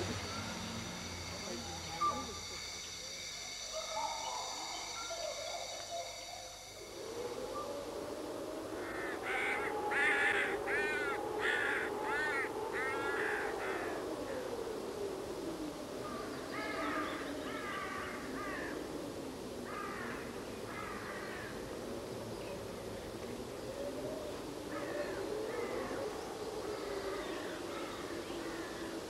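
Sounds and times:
crows cawing: 8.8s - 14.1s, 16.5s - 18.8s, 19.7s - 21.6s.

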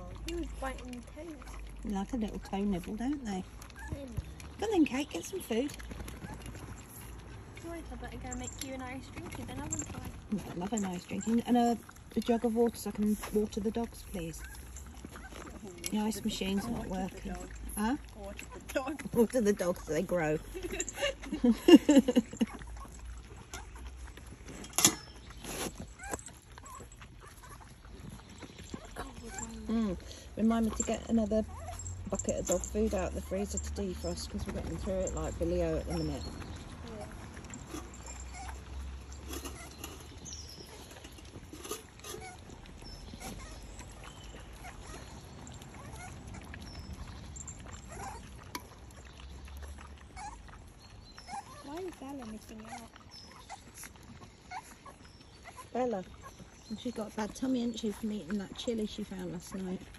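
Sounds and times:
dogs chewing and licking: 0.0s - 59.9s
puppy squeak: 3.8s - 4.0s, 39.4s - 40.8s
clicks against metal bowl: 24.6s - 25.4s.

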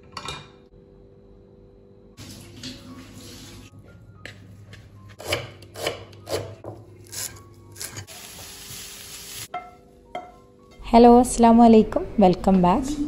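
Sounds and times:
onions sizzling in frying pan: 7.8s - 9.6s.

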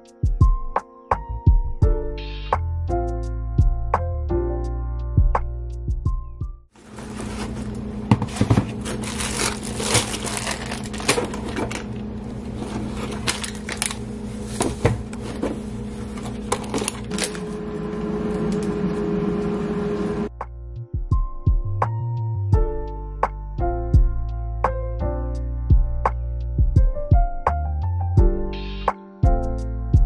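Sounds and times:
items knocking and clattering: 6.8s - 12.0s, 12.6s - 17.4s
bags rustling: 6.8s - 17.6s
higher hum: 6.9s - 20.3s.

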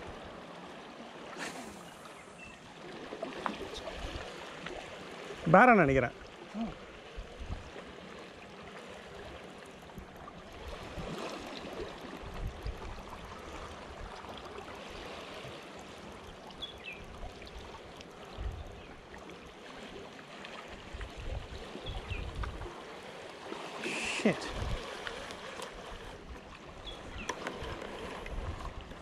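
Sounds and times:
water lapping against rocks: 0.0s - 16.6s, 17.2s - 29.0s
wind buffeting microphone: 12.2s - 14.2s, 18.3s - 18.9s, 20.9s - 22.7s, 24.4s - 29.0s.

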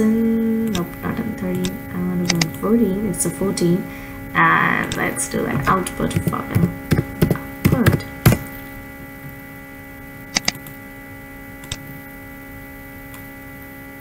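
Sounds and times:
electrical mains hum: 0.0s - 14.0s
mouse clicks: 10.4s - 10.6s.

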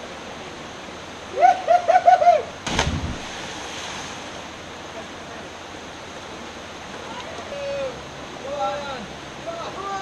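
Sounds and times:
steady water noise: 0.0s - 10.0s
body splashing into water: 2.6s - 4.2s.

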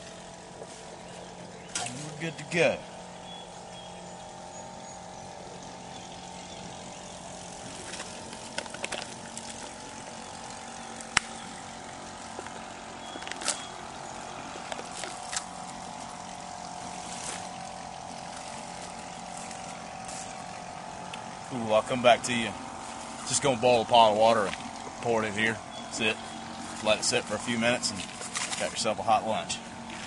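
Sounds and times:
distant engine droning: 0.0s - 30.0s
packet crinkling and clicking: 7.9s - 9.2s.

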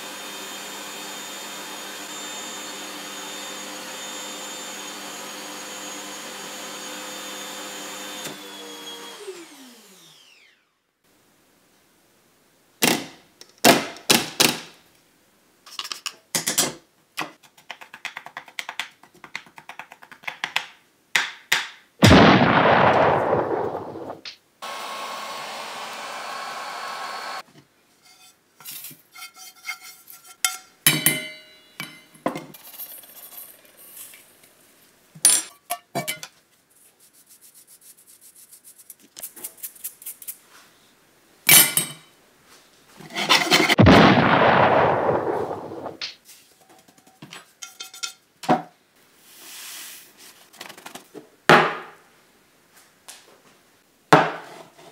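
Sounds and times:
heat gun blowing: 24.6s - 27.4s.

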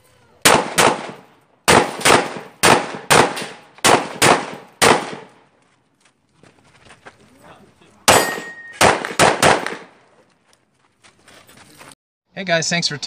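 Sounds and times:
pistol shots: 0.4s - 5.4s, 8.1s - 10.0s.

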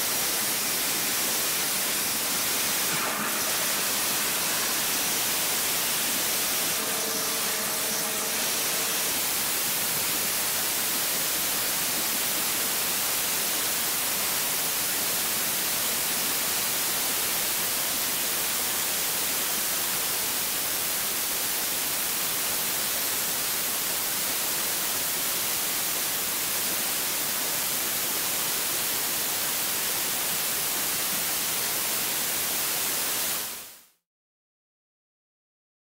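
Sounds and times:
water jet cutter hissing: 0.0s - 14.8s.

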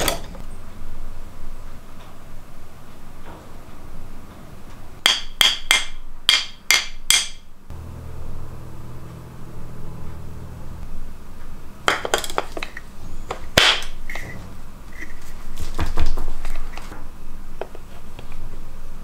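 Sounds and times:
knocks and clatter: 0.0s - 0.5s.

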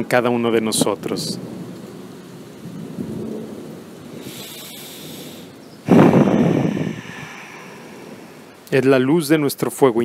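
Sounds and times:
low rumble of thunder: 0.7s - 4.3s, 5.8s - 8.6s
loud thunderclap: 2.6s - 4.3s, 5.8s - 8.6s.

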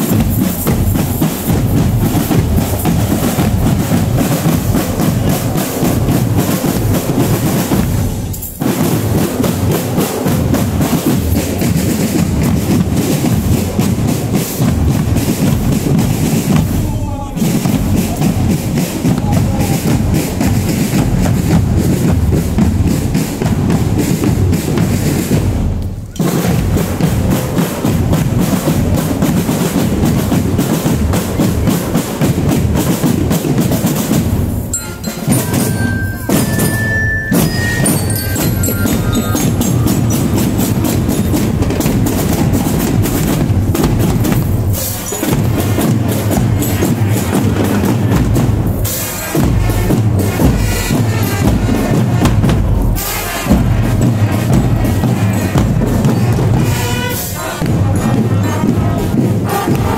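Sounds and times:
bass drums: 0.0s - 59.9s
snare drums beating: 0.0s - 59.9s
bell lyres ringing: 34.6s - 41.7s, 44.3s - 47.3s.

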